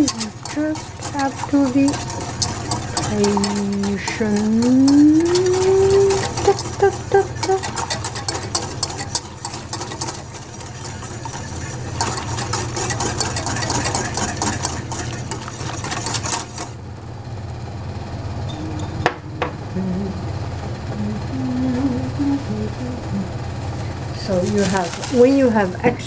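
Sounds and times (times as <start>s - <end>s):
whisk knocking on a cup: 0.0s - 16.7s
whisk scraping a saucepan: 0.0s - 16.8s, 24.3s - 25.7s
steady low hum: 0.0s - 26.0s.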